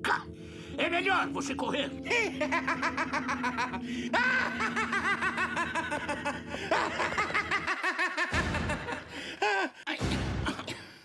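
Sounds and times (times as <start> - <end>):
man's evil laugh: 2.3 - 9.8.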